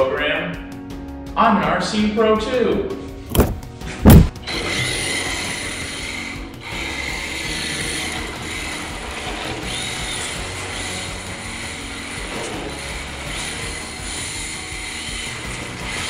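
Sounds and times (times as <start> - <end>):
toy car motor whining: 4.4 - 16.0.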